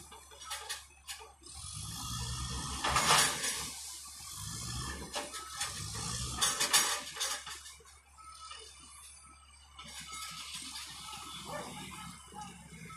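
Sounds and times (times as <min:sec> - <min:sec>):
bulldozer engine rumble: 0:00.0 - 0:12.9
metallic clanking and rattling: 0:02.8 - 0:03.8, 0:05.0 - 0:07.9.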